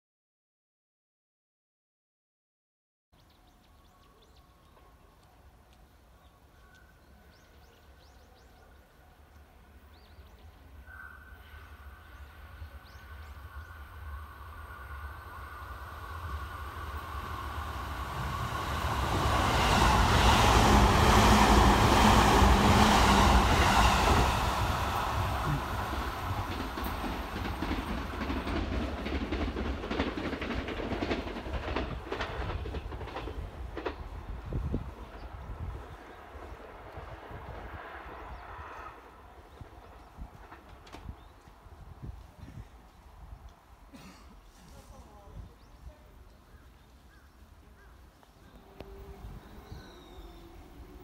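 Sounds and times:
birds chirping: 3.2s - 14.2s, 45.4s - 51.0s
electric train rumble: 3.8s - 43.5s, 47.5s - 51.0s
train wheels clattering over rail joints: 25.4s - 34.3s.

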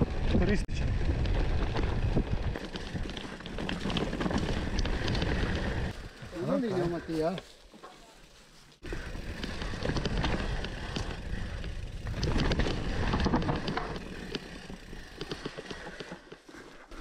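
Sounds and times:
bike rattling over rocks: 0.0s - 17.0s
bike tyres rumbling over ground: 0.0s - 17.0s.

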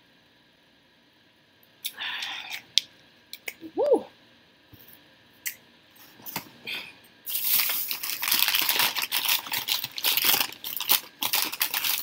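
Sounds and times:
food packaging crinkling: 7.3s - 12.0s.

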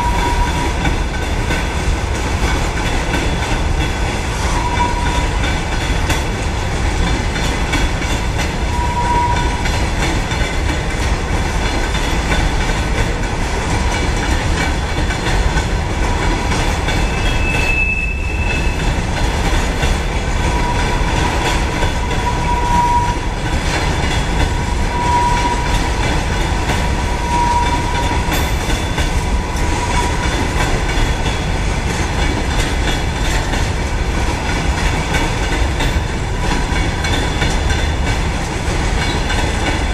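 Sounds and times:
train wheels rumbling on rail: 0.0s - 39.9s
high wheel squeals: 4.4s - 5.4s, 8.7s - 9.8s, 17.0s - 18.9s, 22.1s - 23.3s, 24.9s - 25.8s, 27.1s - 30.3s.

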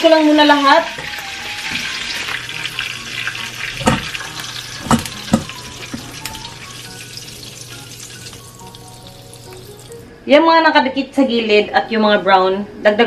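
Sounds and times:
pork sizzling in hot fat: 0.0s - 10.1s
utensil knocking against pan: 3.8s - 6.3s.

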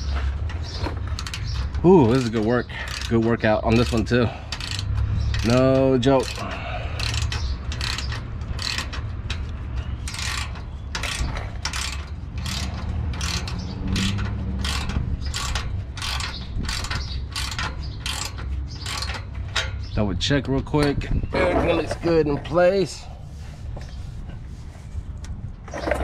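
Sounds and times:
socket ratchet clicking: 3.7s - 20.0s.

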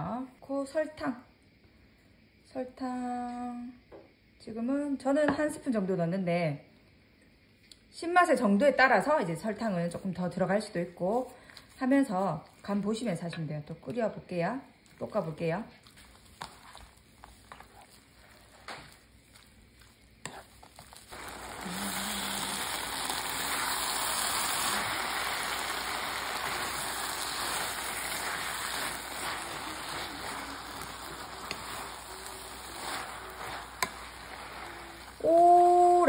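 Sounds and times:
food sizzling in a pan: 8.0s - 36.0s.

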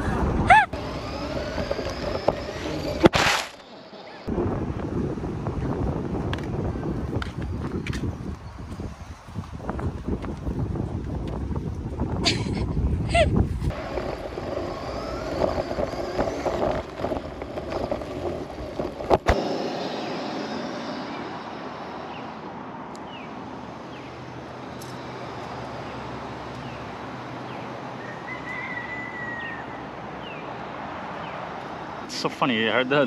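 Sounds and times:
wind noise: 0.0s - 3.4s, 4.2s - 23.5s
toy truck rumble: 0.0s - 4.0s, 13.7s - 22.0s.

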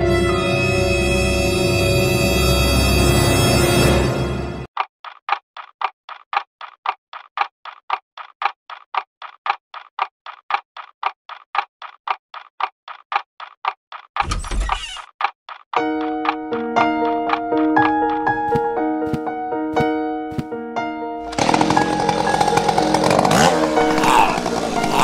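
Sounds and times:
clock ticking quickly: 4.7s - 19.3s, 21.3s - 25.0s.

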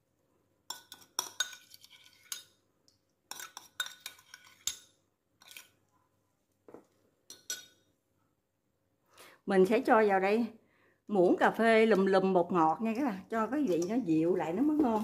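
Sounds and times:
metal spoon clinking against bowls: 0.7s - 2.6s, 3.3s - 5.7s, 7.3s - 7.9s.

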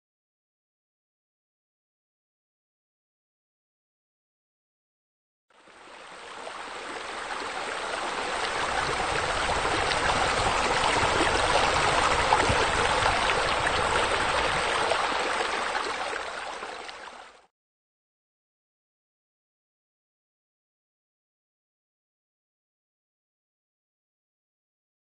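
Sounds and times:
splashing water stream: 5.8s - 17.4s.

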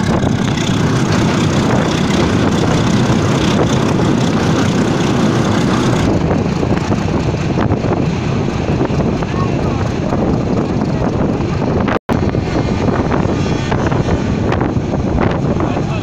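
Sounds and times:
train rumbling and rattling: 0.0s - 16.0s.

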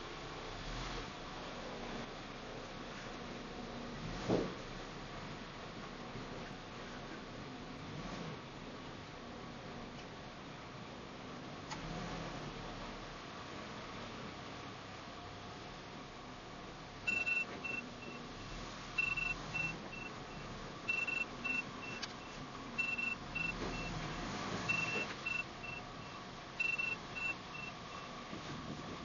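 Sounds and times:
reversing alarm beeping: 17.1s - 18.3s, 19.0s - 24.0s, 24.6s - 28.2s.

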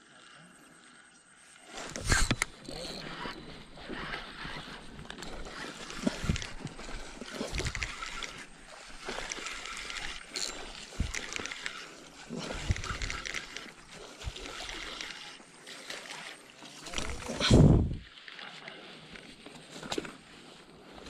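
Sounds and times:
fishing reel whirring: 1.5s - 17.9s.

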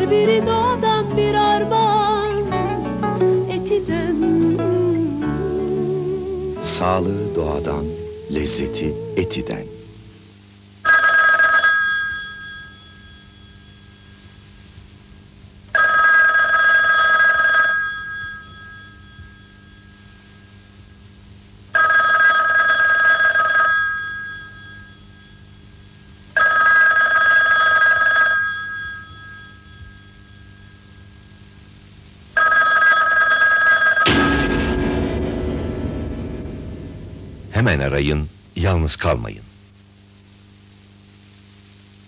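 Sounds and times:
low steady hum: 0.0s - 42.0s
telephone bell ringing: 10.8s - 14.4s, 15.7s - 20.5s, 21.7s - 31.4s, 32.4s - 34.2s.

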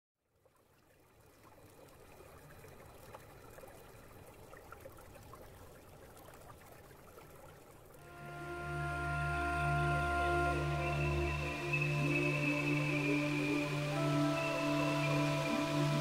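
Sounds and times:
faint water trickling: 0.2s - 16.0s
music with long held tones: 8.0s - 16.0s.

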